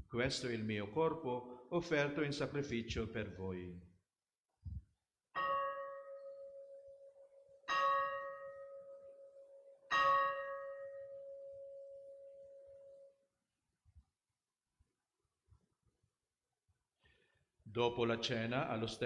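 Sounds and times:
altar bell ringing: 5.4s - 13.2s.

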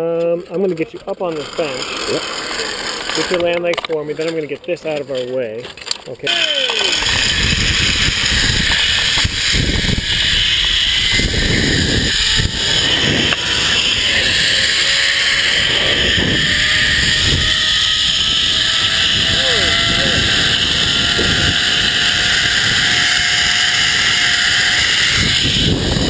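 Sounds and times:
zipline pulleys whining on cable: 1.3s - 3.5s, 6.3s - 26.0s
wind on microphone: 6.9s - 26.0s.

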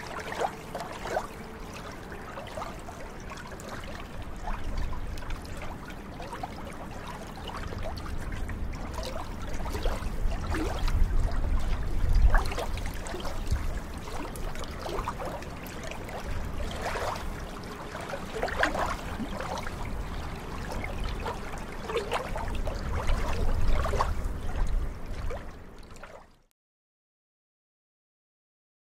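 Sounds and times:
waves lapping on shoreline: 0.0s - 26.4s.

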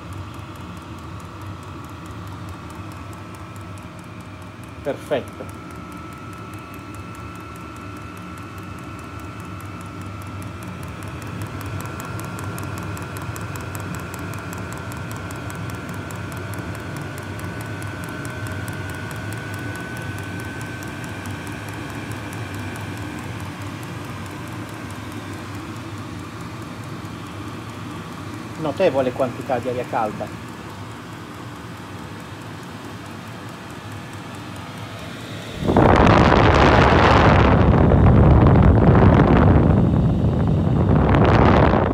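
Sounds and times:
fuel pump ticking: 0.0s - 36.2s
heater blower whirring: 0.0s - 41.9s
low burner rumble: 0.0s - 41.9s.

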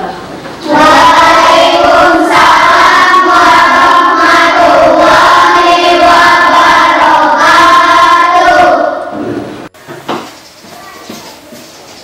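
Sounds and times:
children singing in unison: 0.6s - 9.4s.

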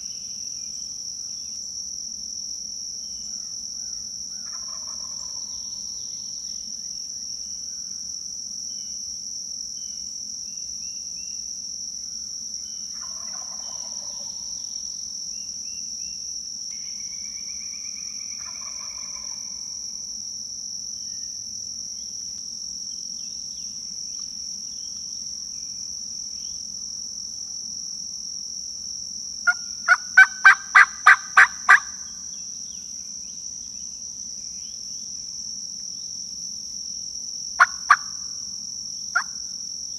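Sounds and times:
high insect chorus: 0.0s - 39.9s
turkey yelps: 29.5s - 31.9s, 37.6s - 38.1s.

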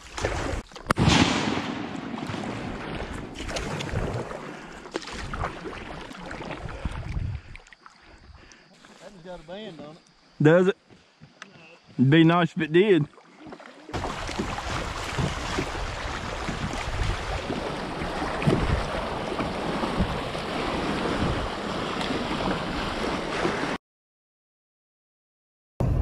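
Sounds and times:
river water rushing and splashing: 2.1s - 8.0s, 13.1s - 23.8s.

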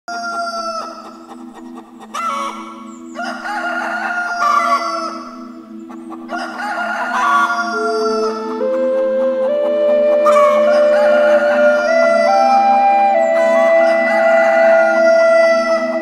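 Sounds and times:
roosters crowing: 0.1s - 1.1s, 2.1s - 5.4s, 6.2s - 8.8s, 10.1s - 16.0s
low music drone: 0.1s - 16.0s.

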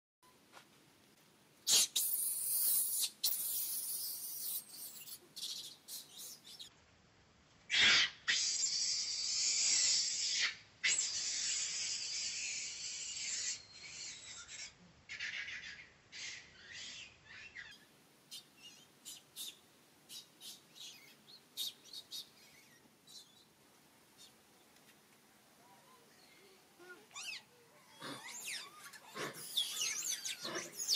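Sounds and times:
monkey screaming: 7.7s - 8.7s, 27.1s - 30.9s.

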